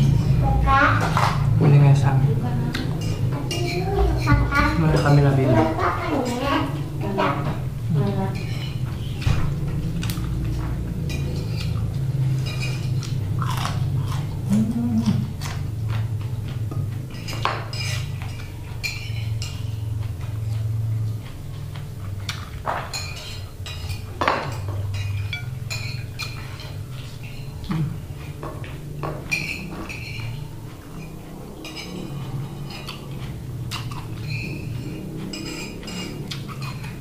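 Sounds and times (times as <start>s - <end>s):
plates and bowls clinking: 0.0s - 2.0s, 2.8s - 37.0s
steady low hum: 0.0s - 37.0s
person chewing: 9.6s - 24.2s, 24.8s - 37.0s.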